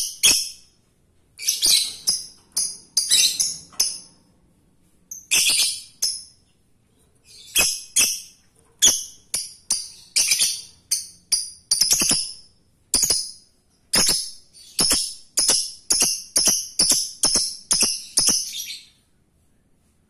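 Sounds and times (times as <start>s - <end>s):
lovebird shrill chirps: 0.0s - 0.6s, 5.1s - 6.3s, 7.3s - 19.0s.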